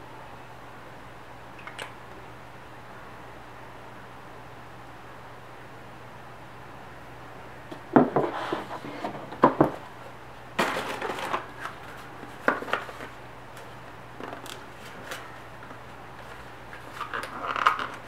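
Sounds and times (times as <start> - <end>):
cardboard scraping rustle: 8.2 - 9.3.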